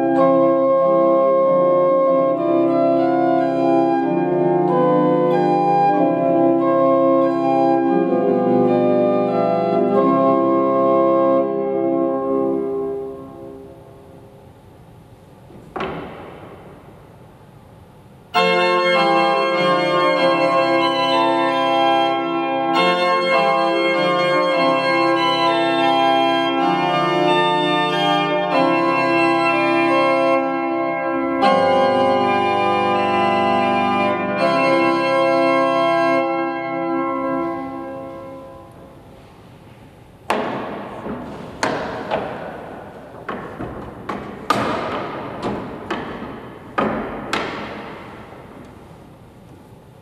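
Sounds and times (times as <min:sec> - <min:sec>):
pipe organ playing chords: 0:00.0 - 0:50.0
wooden knocks of organ stops: 0:15.5 - 0:16.8, 0:40.3 - 0:48.7.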